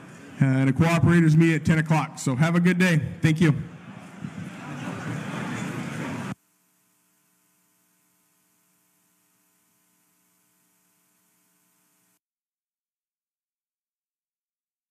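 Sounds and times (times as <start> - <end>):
faint hum with hiss: 0.0 - 12.2.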